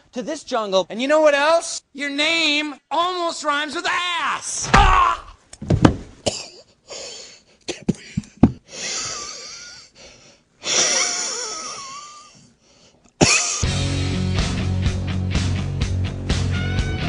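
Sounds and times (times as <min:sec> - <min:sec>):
sharp thumps: 0:04.6 - 0:06.2.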